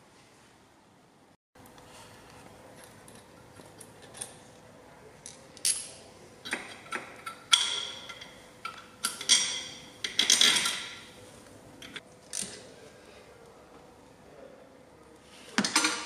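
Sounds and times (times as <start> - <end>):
metal tools clinking: 5.3 - 11.1.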